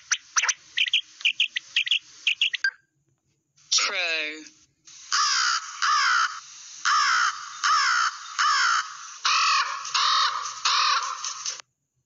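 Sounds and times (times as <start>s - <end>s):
crow cawing: 5.1s - 11.3s.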